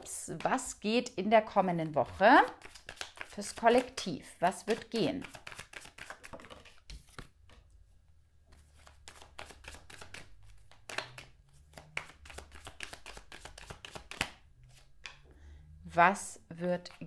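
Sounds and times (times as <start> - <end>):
cards being shuffled: 1.8 - 4.0, 4.6 - 7.7, 8.5 - 15.2.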